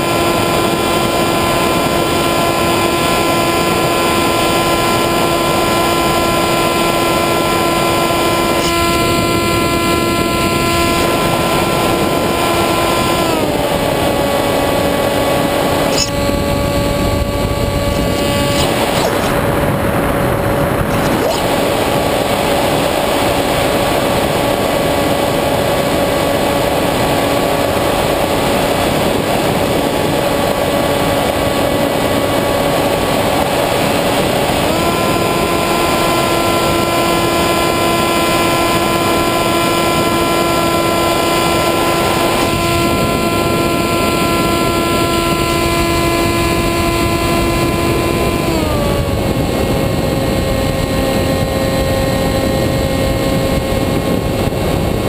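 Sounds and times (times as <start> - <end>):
electric motor and propeller whining: 0.0 - 55.0
wind rush: 8.0 - 34.7, 41.6 - 55.0.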